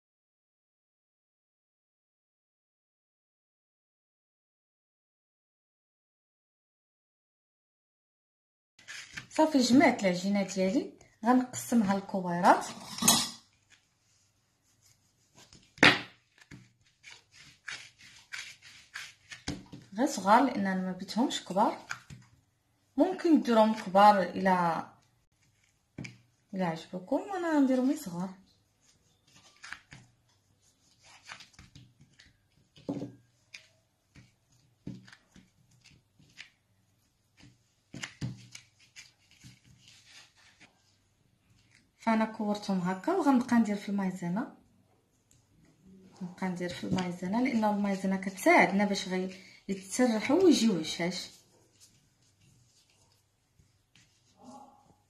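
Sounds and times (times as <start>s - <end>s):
knife scraping through dough: 8.8s - 9.4s, 14.6s - 19.9s, 28.8s - 40.8s.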